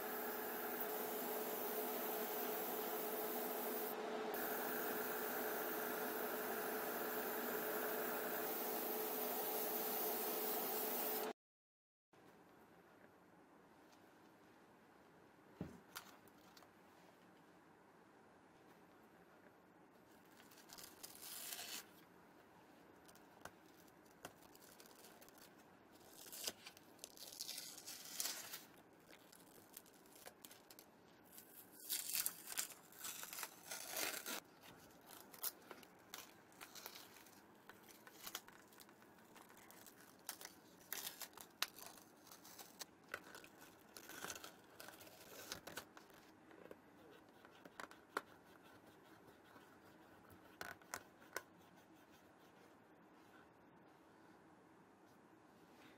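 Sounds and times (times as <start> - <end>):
masking tape being peeled off: 20.4 - 22.0, 23.1 - 46.2
tape crinkling: 23.0 - 46.3.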